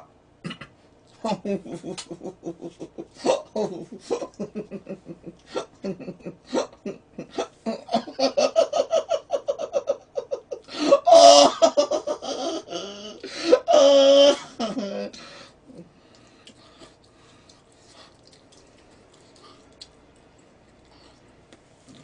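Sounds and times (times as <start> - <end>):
man laughing in bursts: 1.2 - 15.2
man crying out loudly: 10.8 - 11.8.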